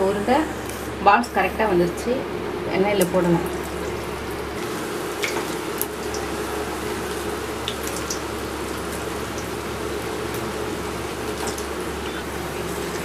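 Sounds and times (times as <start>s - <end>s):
oil bubbling and sizzling: 2.3s - 13.0s.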